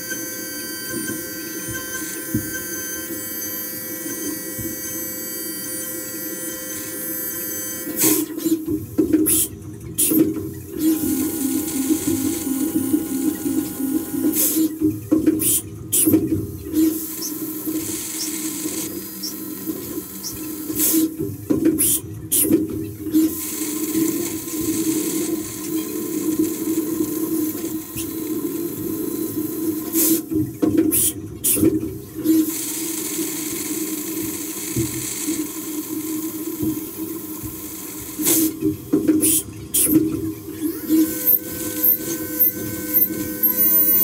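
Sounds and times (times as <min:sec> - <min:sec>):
machine hum: 0:40.6 - 0:44.0.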